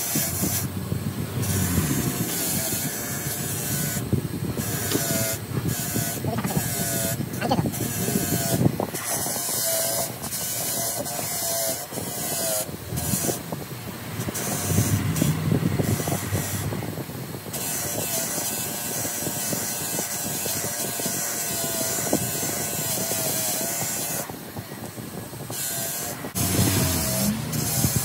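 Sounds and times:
bench grinder motor whine: 0:00.0 - 0:19.7, 0:25.5 - 0:28.0
metal scratching on grinding wheel: 0:01.4 - 0:24.2, 0:25.5 - 0:28.0.

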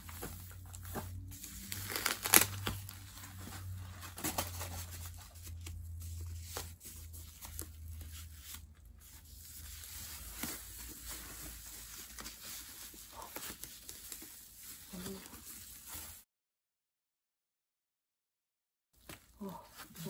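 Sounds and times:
plastic film rustling and crinkling: 0:00.0 - 0:16.2
tape peeling: 0:01.4 - 0:03.2.

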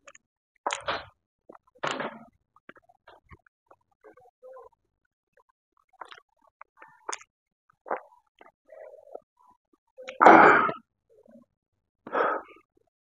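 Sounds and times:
wet chewing smacks: 0:06.0 - 0:09.2.

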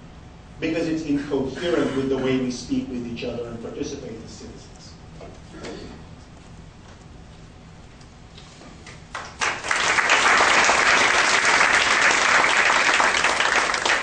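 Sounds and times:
audience applause: 0:09.1 - 0:14.0.

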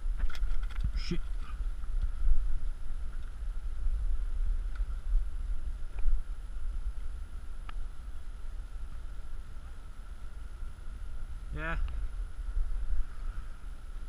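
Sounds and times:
wind buffeting microphone: 0:00.0 - 0:14.0
faint ticks: 0:04.5 - 0:05.0, 0:06.9 - 0:07.9.

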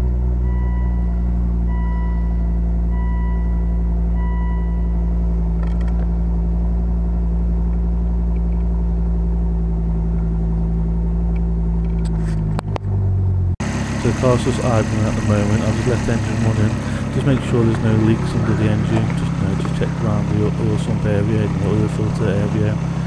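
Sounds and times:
car engine idling: 0:00.0 - 0:23.0
dashboard warning chime beeping: 0:00.4 - 0:05.3.

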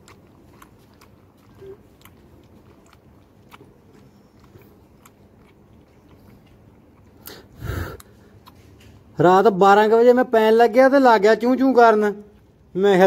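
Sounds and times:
puppy lapping milk: 0:00.0 - 0:07.6.

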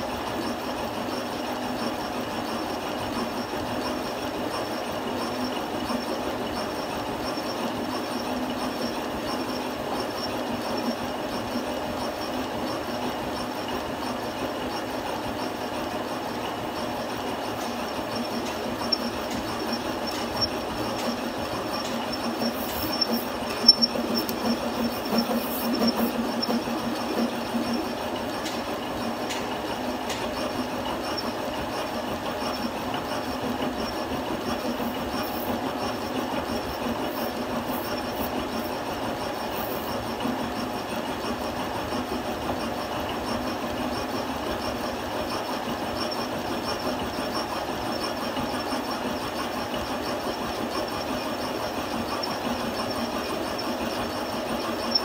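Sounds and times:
metal lathe grinding with high whine: 0:00.0 - 0:55.0.

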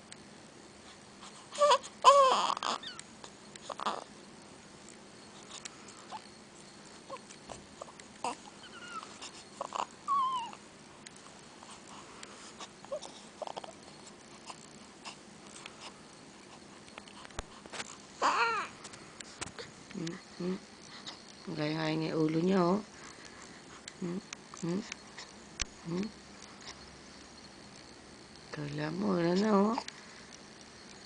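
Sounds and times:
baby whimpering and squealing: 0:01.6 - 0:03.0, 0:08.2 - 0:10.6, 0:18.2 - 0:18.7.

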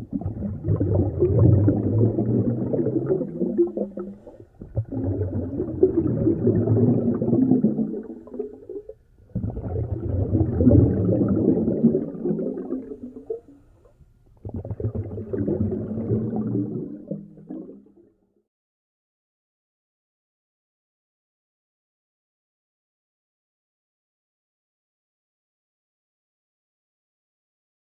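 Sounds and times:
water movement: 0:00.0 - 0:17.7
underwater rumble: 0:00.0 - 0:17.8.

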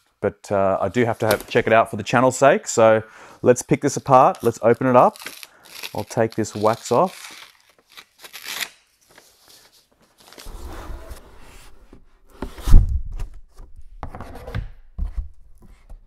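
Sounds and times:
paper wrapping rustling and tearing: 0:04.4 - 0:10.6.

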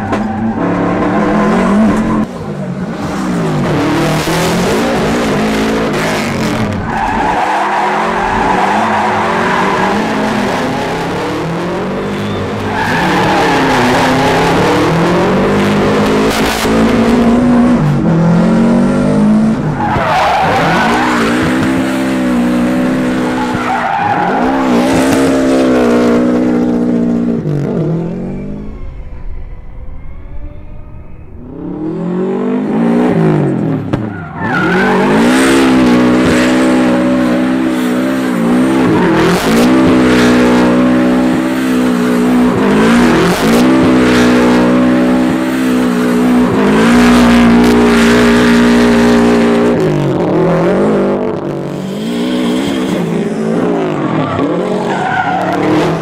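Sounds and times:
rally car engine revving: 0:00.0 - 0:29.6, 0:30.4 - 0:56.0
tyres skidding: 0:00.0 - 0:56.0.

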